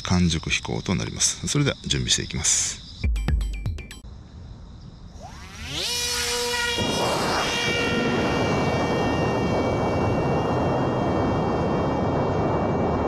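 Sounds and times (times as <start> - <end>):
electric motor propeller whine: 5.1 - 13.0
wind noise rushing: 5.1 - 13.0.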